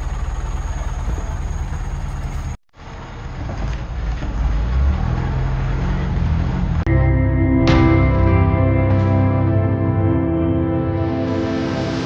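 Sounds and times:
boat engine low rumble: 0.0 - 4.9.

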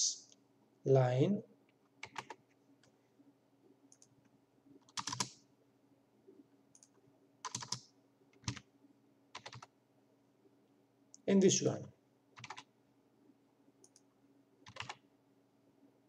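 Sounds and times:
faint steady hum: 0.0 - 16.0
keyboard keys tapping: 6.8 - 7.8, 12.4 - 12.6, 14.7 - 15.0.

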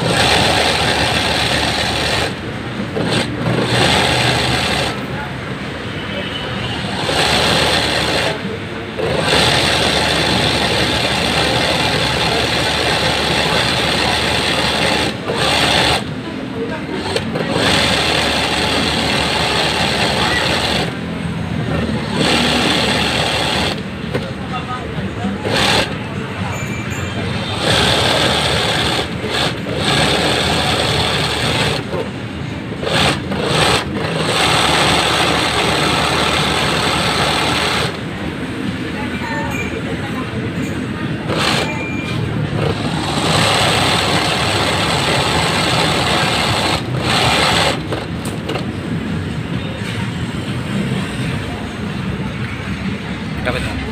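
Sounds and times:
sewing machine rattling: 0.0 - 5.1, 7.0 - 16.2, 17.0 - 24.2, 25.4 - 26.0, 27.4 - 32.1, 32.8 - 38.1, 41.2 - 48.7.

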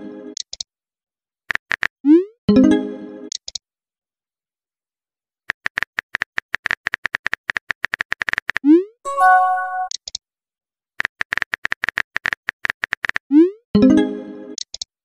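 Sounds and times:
chime-like alert tone: 9.1 - 9.9
short pitched tone: 9.1 - 9.9.

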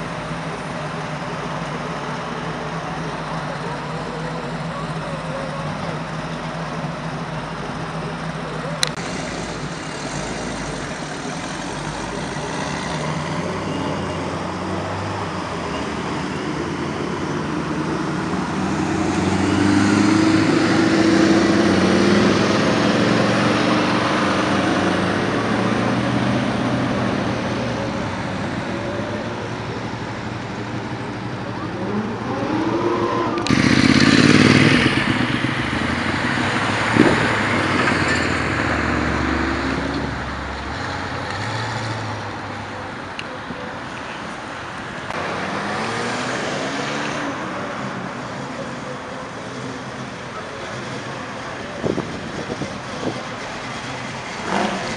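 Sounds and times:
car engines driving past: 0.0 - 54.9
engine revving: 8.8 - 28.7, 31.5 - 42.5, 45.1 - 48.8, 51.9 - 54.9.

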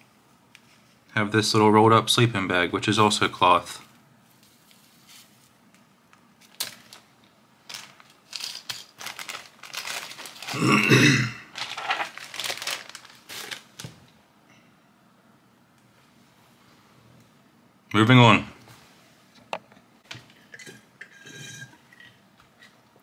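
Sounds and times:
packaging crinkling and rustling: 4.4 - 10.7, 11.5 - 14.1.

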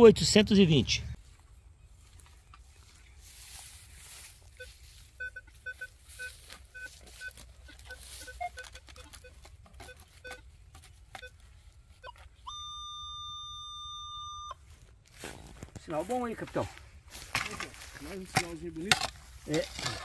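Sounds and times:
vegetation rustling: 1.2 - 12.4, 14.6 - 20.0
metal detector held tone: 4.5 - 14.6
metal detector short beeps: 4.6 - 10.5, 11.1 - 14.6.

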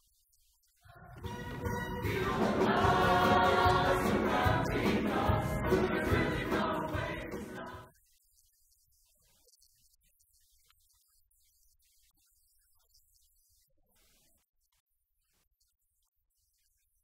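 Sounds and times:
choir singing: 0.9 - 7.9.

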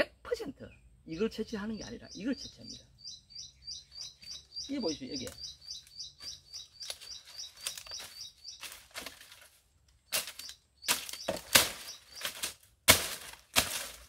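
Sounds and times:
bird chirping: 0.0 - 12.5
palm fronds rustling and cracking: 6.8 - 14.0.

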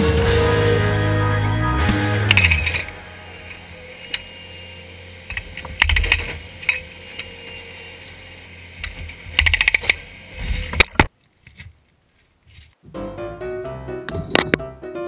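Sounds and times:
loader engine running: 0.0 - 11.0.

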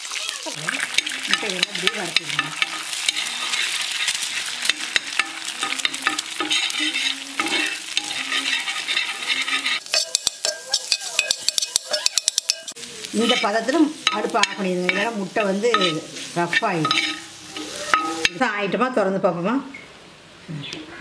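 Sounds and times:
eggs sizzling in oil: 0.0 - 19.1
spoon scraping a pan: 0.6 - 18.6
spoon clicking against pan: 9.9 - 12.8.

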